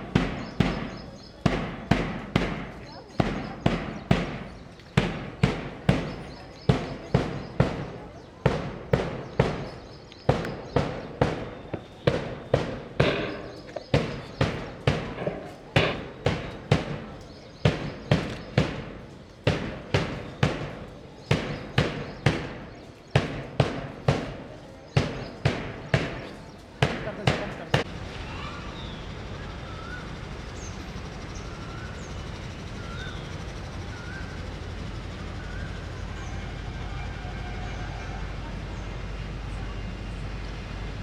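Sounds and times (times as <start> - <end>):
drum beating marching rhythm: 0.0 - 28.0.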